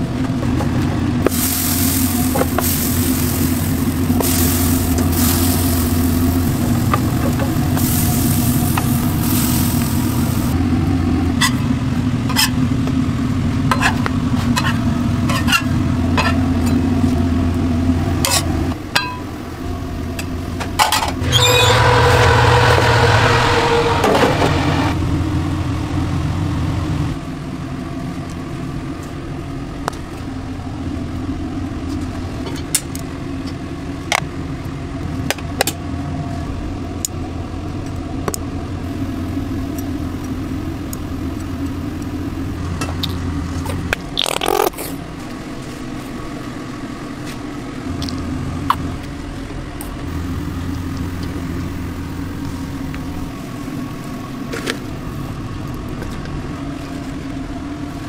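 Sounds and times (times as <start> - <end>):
low machine hum: 0.0 - 58.0
loud hiss: 1.3 - 10.6.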